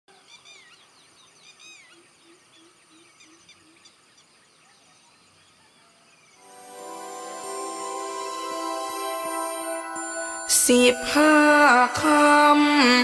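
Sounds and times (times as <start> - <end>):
faint steady high tone: 6.4 - 13.0.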